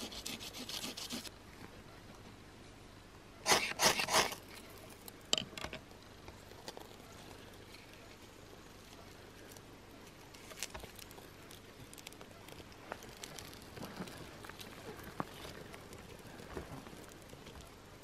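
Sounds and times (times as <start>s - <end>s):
fire steel scraping: 3.4s - 5.1s.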